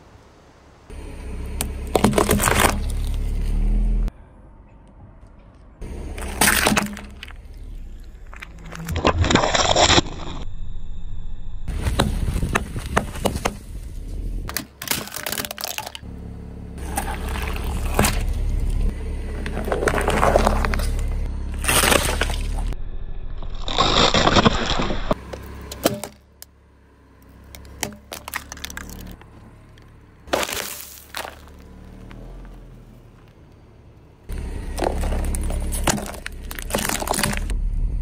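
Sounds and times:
low rumble of car: 0:00.0 - 0:38.0
plastic cracking and crunching: 0:14.5 - 0:16.0, 0:27.6 - 0:29.3, 0:34.8 - 0:37.5.

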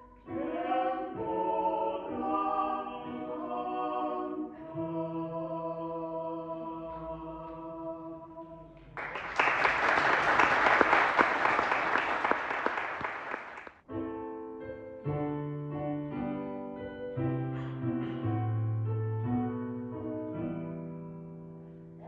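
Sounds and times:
vocal quartet singing a chord: 0:00.1 - 0:08.8
audience applauding: 0:09.0 - 0:13.8.

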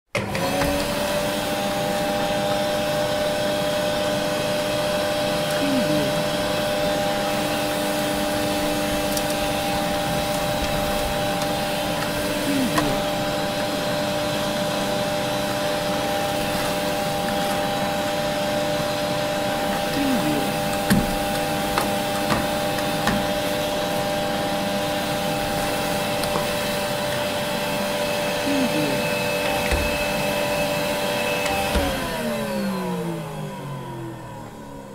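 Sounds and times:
vacuum cleaner motor whining: 0:00.1 - 0:34.9.

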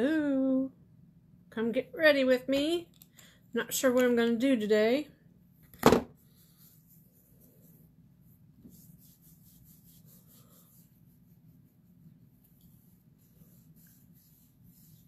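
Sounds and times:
hands rubbing on skin: 0:06.2 - 0:15.0.

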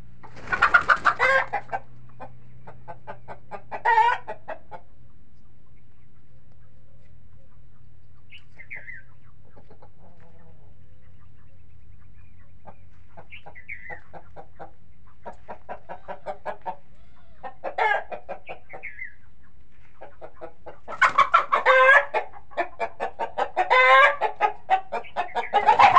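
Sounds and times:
chickens cackling: 0:00.0 - 0:25.9
chickens clucking: 0:00.0 - 0:25.9.

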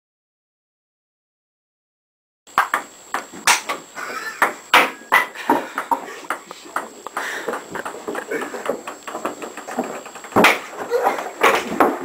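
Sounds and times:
ping pong ball clicking: 0:02.6 - 0:03.7.

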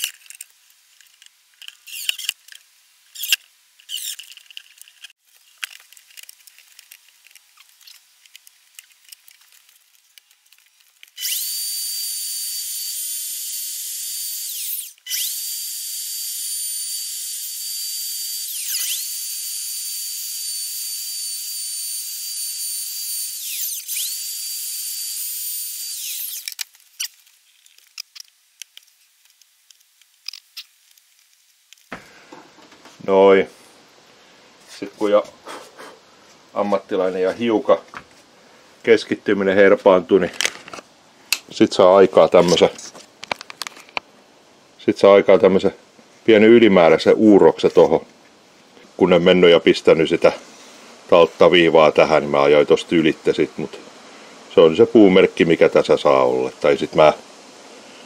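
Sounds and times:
cordless drill bursts: 0:11.2 - 0:26.6
router high whine: 0:11.2 - 0:26.6.

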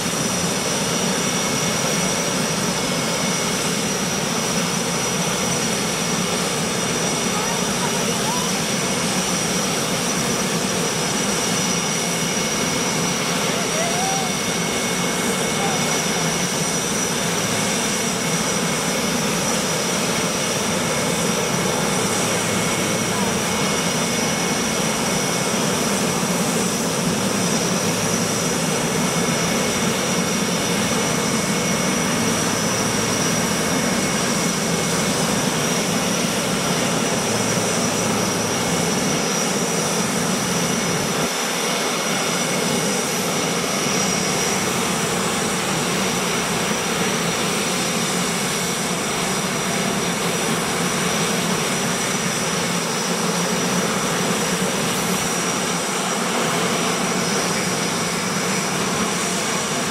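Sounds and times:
jet engine running: 0:00.0 - 0:59.9.

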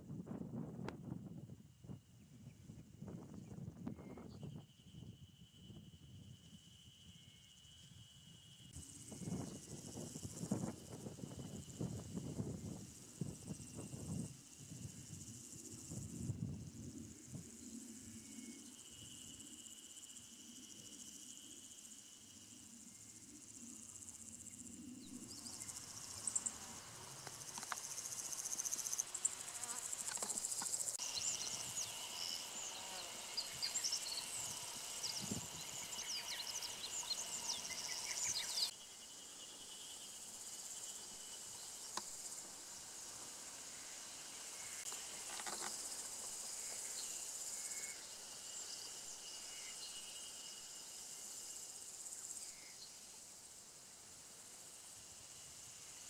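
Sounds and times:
insects trilling: 0:01.4 - 0:56.0
short high insect chirps: 0:17.2 - 0:53.2.

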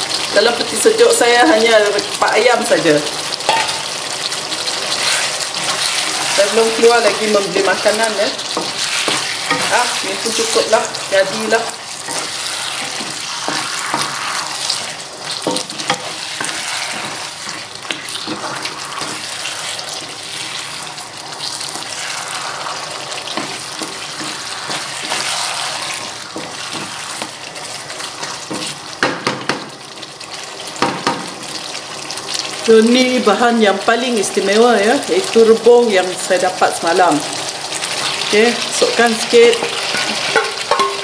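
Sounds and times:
chicken sizzling in frying pan: 0:00.0 - 0:41.0
wooden spatula scraping pan: 0:04.6 - 0:20.8, 0:21.5 - 0:28.9, 0:39.0 - 0:41.0
spatula knocking against pan: 0:28.5 - 0:29.7, 0:40.3 - 0:41.0.

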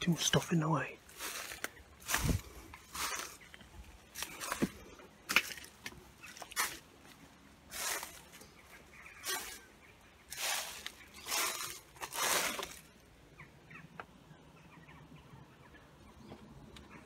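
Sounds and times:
footsteps crunching through dry leaves: 0:00.0 - 0:13.1
small birds chirping: 0:00.0 - 0:17.0.

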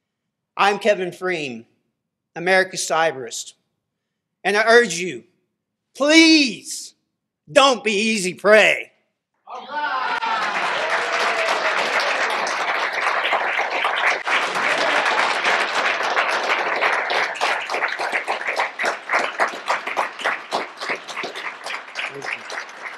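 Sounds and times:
audience applauding: 0:09.5 - 0:22.9.

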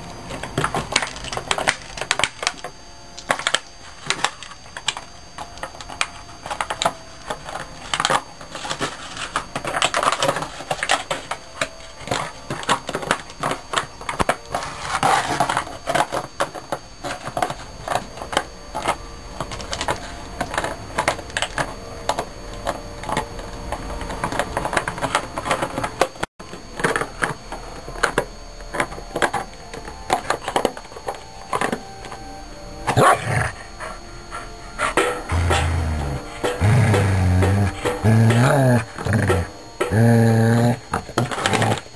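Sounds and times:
dog chewing plastic bottle: 0:34.9 - 0:41.9.

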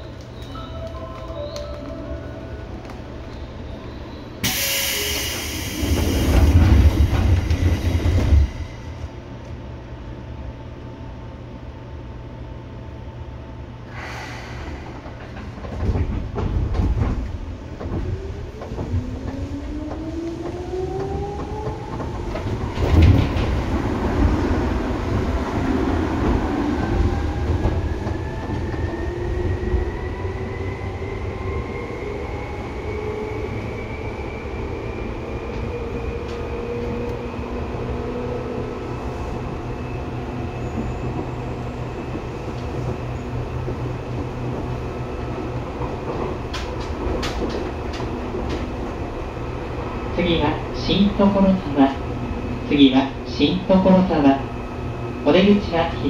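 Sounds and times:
train running on rails: 0:00.0 - 0:56.0
train clunks: 0:14.0 - 0:24.4.

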